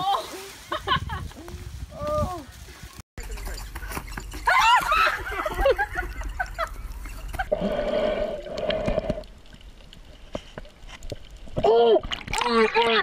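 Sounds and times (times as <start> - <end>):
voices crying out: 3.2 - 7.1
steady hum: 3.2 - 7.5.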